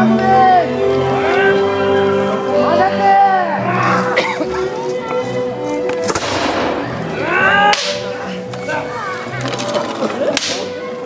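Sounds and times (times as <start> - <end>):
people shouting: 3.0 - 4.2, 6.8 - 8.8
sharp whip-like cracks: 6.1 - 6.8, 7.7 - 8.1, 10.4 - 10.7.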